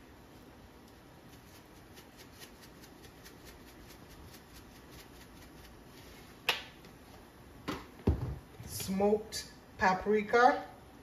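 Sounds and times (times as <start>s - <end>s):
pepper shaker rattling: 1.3s - 5.9s.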